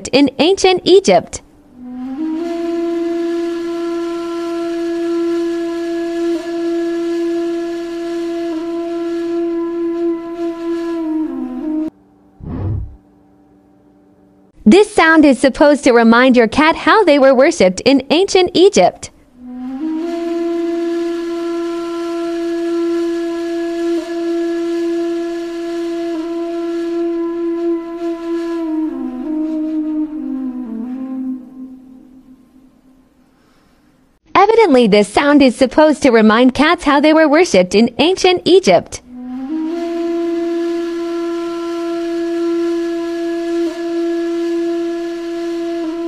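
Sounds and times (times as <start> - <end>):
low flute-like note: 1.8 - 13.0, 19.4 - 33.0, 39.1 - 46.0.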